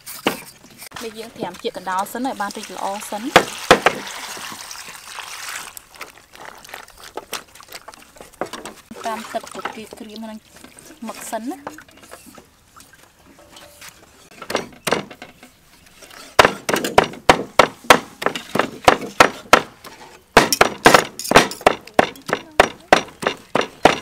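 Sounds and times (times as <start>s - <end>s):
cleavers chopping on wooden block: 3.3s - 4.0s, 16.4s - 19.8s, 20.4s - 24.0s.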